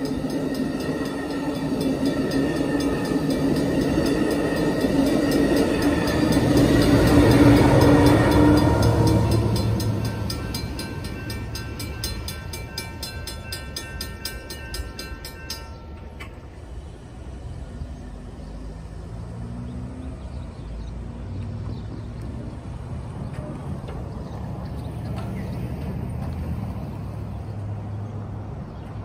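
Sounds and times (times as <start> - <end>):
railroad crossing bell ringing: 0.0 - 16.9
low rumble of train: 0.0 - 29.0.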